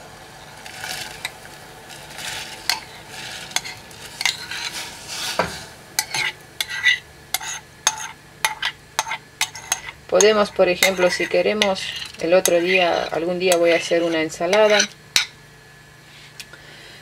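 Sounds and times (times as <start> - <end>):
spoon scraping ceramic bowl: 2.7 - 5.4, 6.0 - 15.3.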